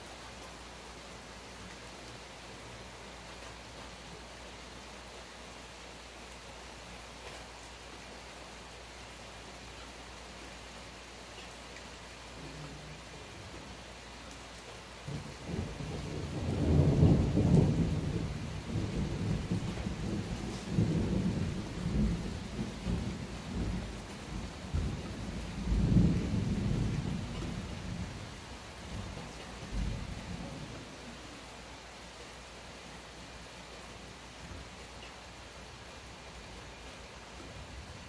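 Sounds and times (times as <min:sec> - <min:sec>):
rain hiss: 0:00.0 - 0:38.0
thunder rumbling: 0:15.1 - 0:31.0.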